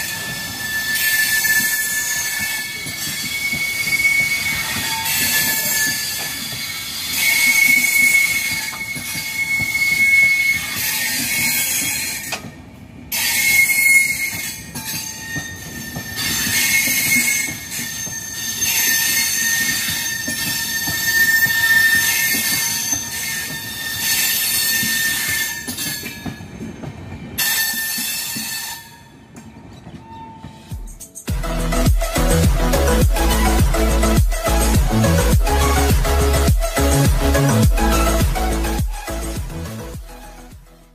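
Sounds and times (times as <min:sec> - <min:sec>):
train wheels squealing: 0:00.0 - 0:31.3
train running gear rumble: 0:00.0 - 0:40.8.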